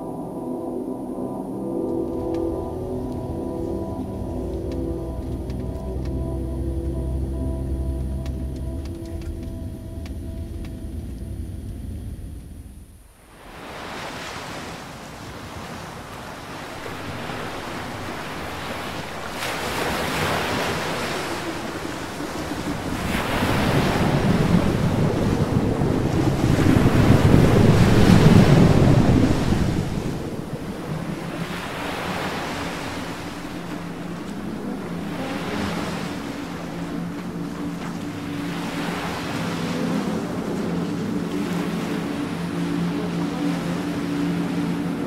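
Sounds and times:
faint low hum: 0:00.0 - 0:13.4
waves washing: 0:00.0 - 0:45.0
wind noise on microphone: 0:00.0 - 0:45.0.

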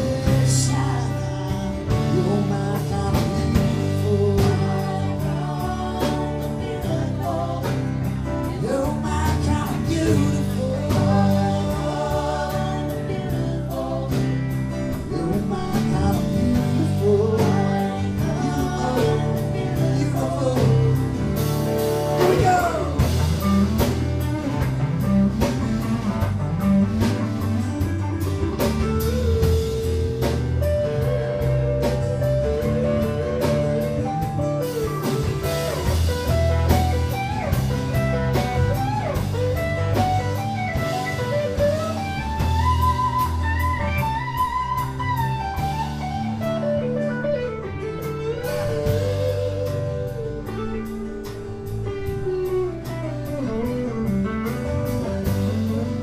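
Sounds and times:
vocals: 0:00.0 - 0:25.9, 0:27.3 - 0:56.0
live band music: 0:00.0 - 0:56.0.

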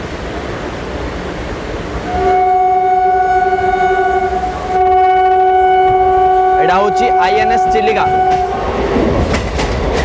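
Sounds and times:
moving train running noise: 0:00.0 - 0:10.0
electric train horn blast: 0:02.0 - 0:08.7.

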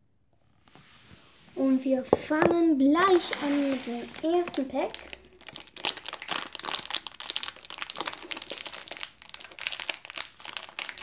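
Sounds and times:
plastic packaging crinkling: 0:03.0 - 0:11.0.

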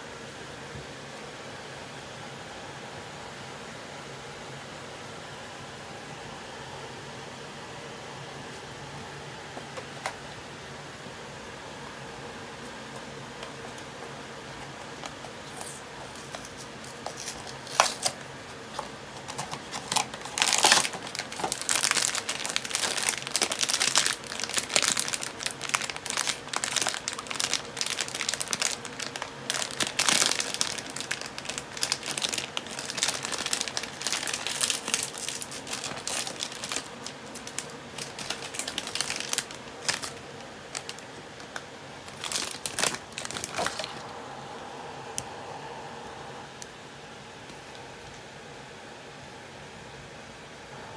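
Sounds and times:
foil pouch crinkling: 0:19.2 - 0:44.0.

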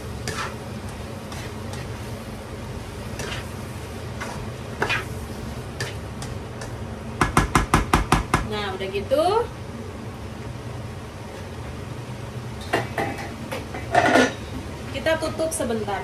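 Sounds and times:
spatula scraping wok: 0:00.0 - 0:06.8
faint sizzling: 0:00.0 - 0:07.4
spatula tapping pan: 0:05.8 - 0:08.5.

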